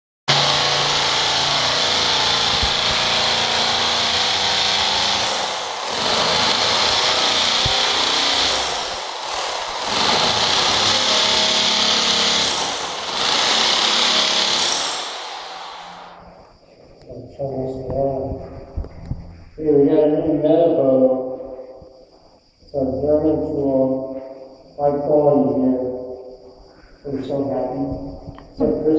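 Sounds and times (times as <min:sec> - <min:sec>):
drill grinding glue off concrete: 0:00.3 - 0:16.4.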